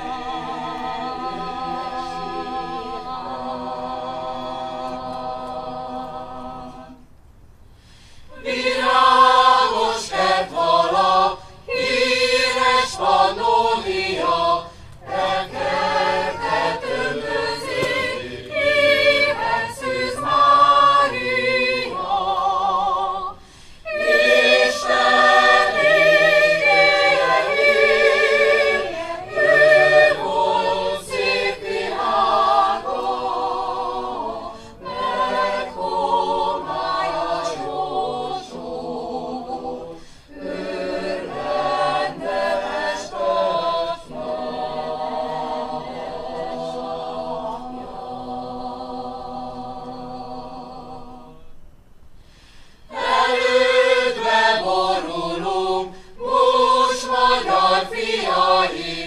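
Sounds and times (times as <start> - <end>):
choir singing: 0.0 - 7.1, 8.3 - 51.6, 52.9 - 59.0.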